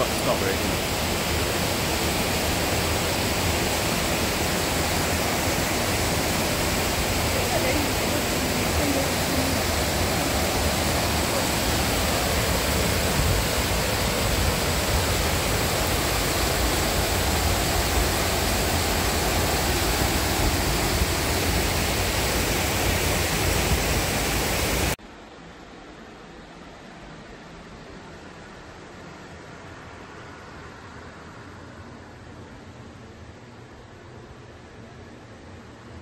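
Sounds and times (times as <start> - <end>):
river rushing over weirs: 0.0 - 36.0
rain falling: 2.6 - 25.0.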